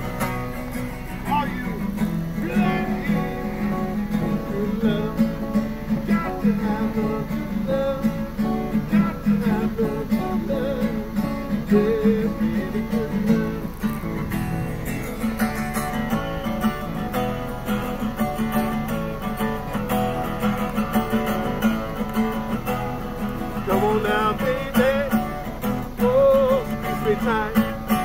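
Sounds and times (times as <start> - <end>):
acoustic guitar strumming chords: 0.0 - 28.0
man singing: 1.2 - 14.3, 23.4 - 28.0.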